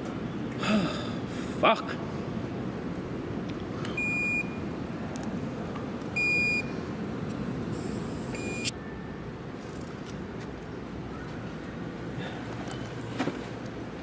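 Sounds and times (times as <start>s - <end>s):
soda bottle opening hiss: 7.8s - 8.5s
electronic beeps: 7.8s - 8.7s.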